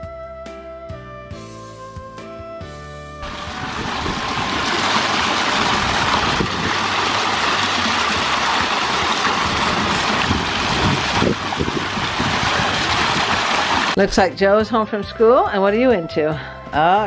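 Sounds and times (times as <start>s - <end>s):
fountain water splashing: 3.2s - 14.0s.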